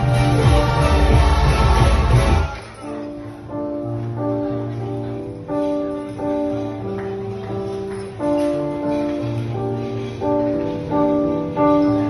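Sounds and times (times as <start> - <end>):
gentle instrumental music: 0.0 - 12.0.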